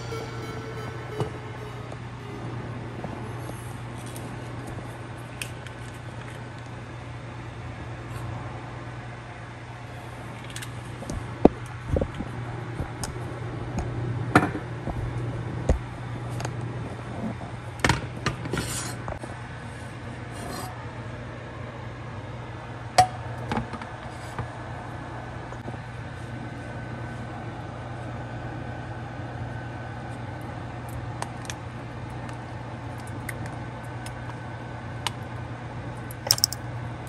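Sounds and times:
steady low hum: 0:00.0 - 0:06.7.

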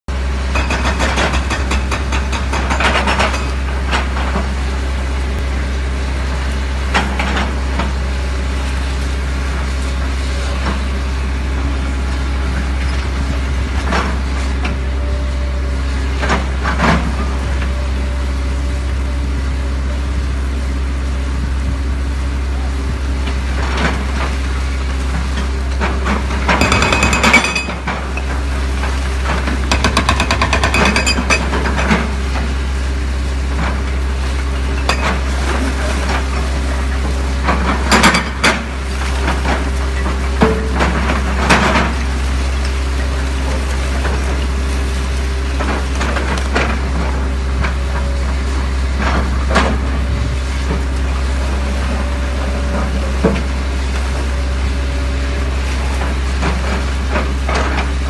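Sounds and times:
excavator diesel engine running: 0:00.1 - 0:58.0
hydraulic breaker hammering: 0:00.5 - 0:04.1, 0:26.1 - 0:28.3, 0:29.3 - 0:32.1.

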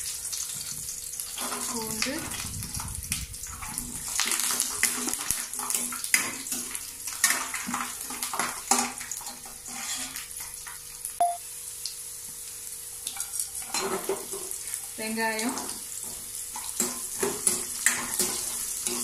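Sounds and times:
garlic sizzling in hot oil: 0:00.0 - 0:19.0
ladle scraping pan: 0:03.5 - 0:10.3.

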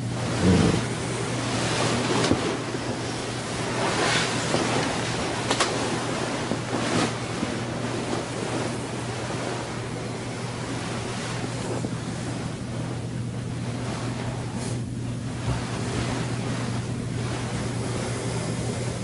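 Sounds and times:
low hum: 0:00.0 - 0:19.0
bedding rustling: 0:00.3 - 0:18.2.

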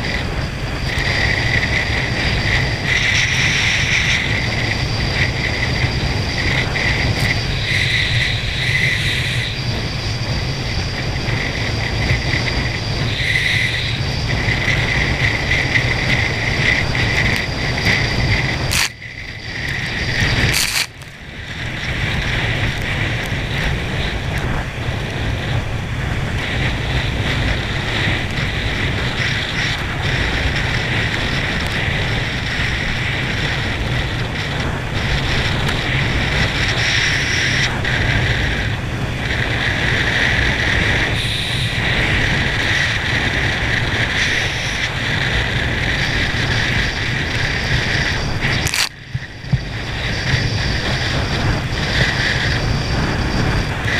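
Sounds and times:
wind buffeting microphone: 0:00.0 - 0:53.9
water spray hissing: 0:41.1 - 0:42.5.

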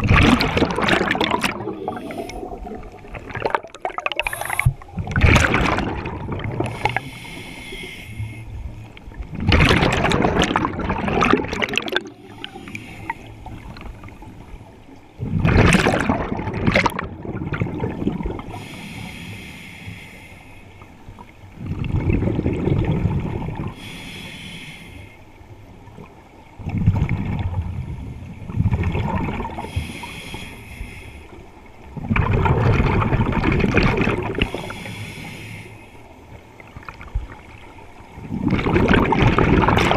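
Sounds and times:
rush of exhaled bubbles: 0:00.0 - 0:07.1, 0:09.3 - 0:12.7, 0:15.2 - 0:18.6, 0:21.6 - 0:23.8, 0:26.6 - 0:27.8, 0:28.5 - 0:29.8, 0:32.0 - 0:34.9, 0:38.2 - 0:39.9
hissing inhale through regulator: 0:01.6 - 0:03.0, 0:04.2 - 0:04.9, 0:06.6 - 0:08.8, 0:12.0 - 0:13.7, 0:18.5 - 0:21.0, 0:23.7 - 0:25.4, 0:29.6 - 0:31.5, 0:34.4 - 0:36.2.

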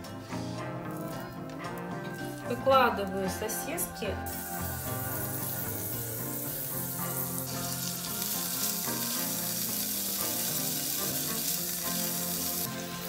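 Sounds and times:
background music: 0:00.0 - 0:13.0
sausages sizzling in oil: 0:04.2 - 0:13.0.

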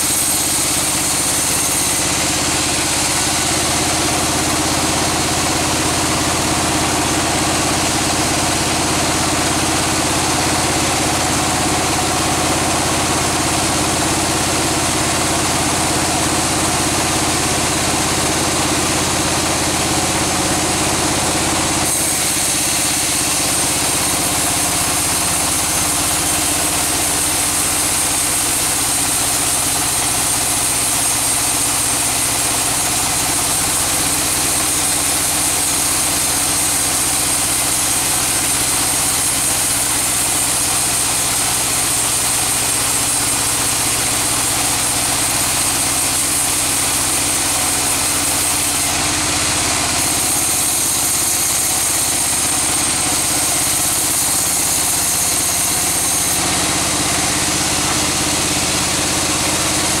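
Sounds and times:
band saw cutting log: 0:00.0 - 1:00.0.

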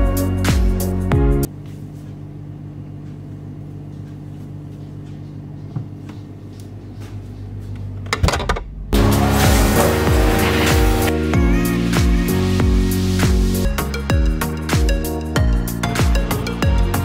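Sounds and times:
kitchen appliance humming: 0:09.0 - 0:11.6.

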